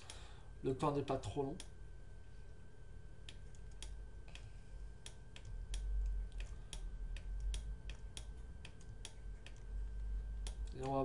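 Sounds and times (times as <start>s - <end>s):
faint high-pitched whine: 0.0s - 11.0s
computer controls clicking: 1.5s - 1.8s, 3.2s - 11.0s.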